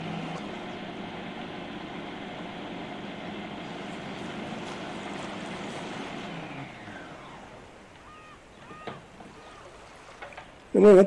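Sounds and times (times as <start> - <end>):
food processor motor running: 0.0 - 8.8.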